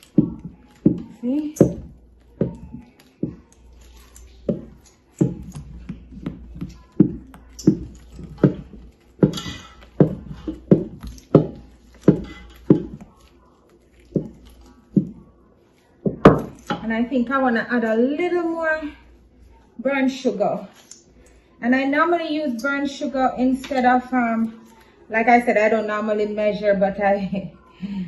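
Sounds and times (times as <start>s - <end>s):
wooden spoon stirring thick batter: 0.0s - 21.5s.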